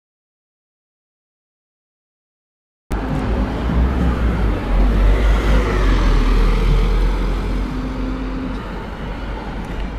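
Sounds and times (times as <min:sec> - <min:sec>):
bus diesel engine accelerating: 0:02.9 - 0:09.9.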